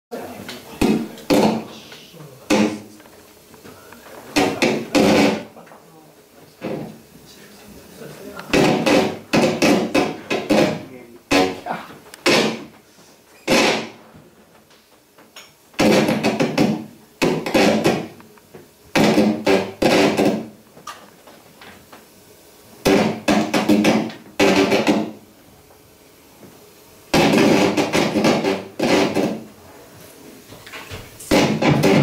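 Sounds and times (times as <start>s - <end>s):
rapid ringing percussion hits: 8.5s - 12.6s.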